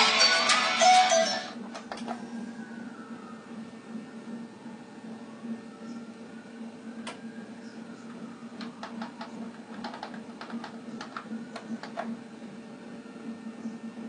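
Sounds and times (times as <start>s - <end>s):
low electrical hum: 0.0s - 14.0s.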